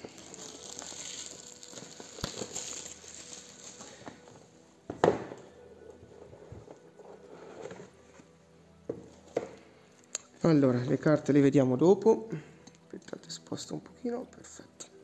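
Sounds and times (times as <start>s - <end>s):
plastic shrink-wrap crinkling: 0.0s - 4.4s.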